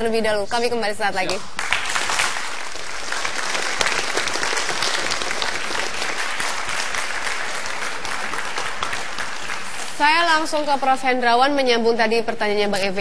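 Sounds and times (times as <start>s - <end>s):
audience applauding: 1.4s - 10.1s.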